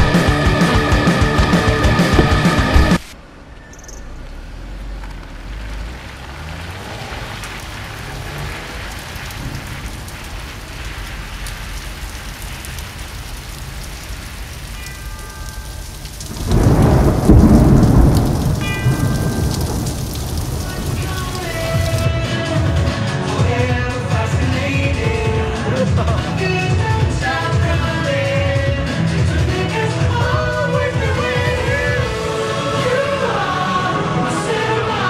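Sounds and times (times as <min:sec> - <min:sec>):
loud rumble: 0:00.0 - 0:13.9, 0:16.1 - 0:22.1
steady rain falling: 0:04.1 - 0:34.9.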